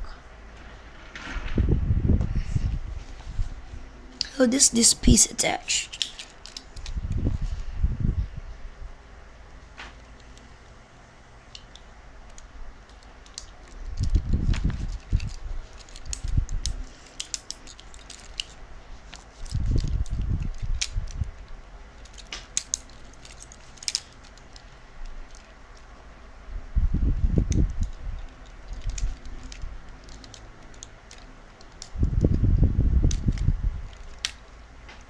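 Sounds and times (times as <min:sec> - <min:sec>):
plastic toy parts clicking: 0:05.9 - 0:07.0, 0:11.5 - 0:25.9, 0:27.5 - 0:32.0, 0:33.1 - 0:34.4.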